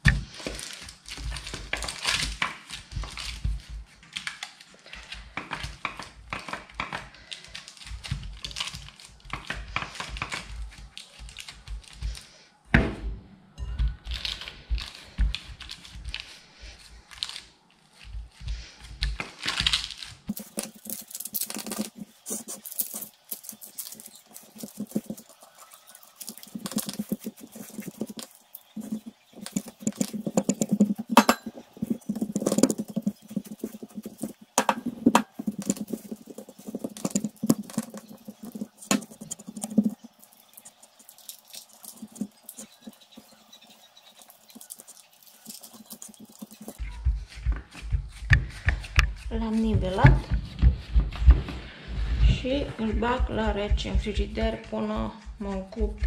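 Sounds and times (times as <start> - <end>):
crumbs pressed into cake pan: 13.8 - 51.6.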